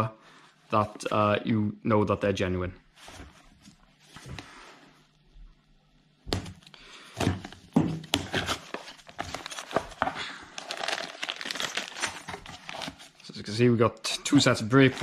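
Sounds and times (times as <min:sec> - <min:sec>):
cardboard flaps rustling: 0:06.3 - 0:13.2
plastic bag crinkling: 0:08.2 - 0:13.2.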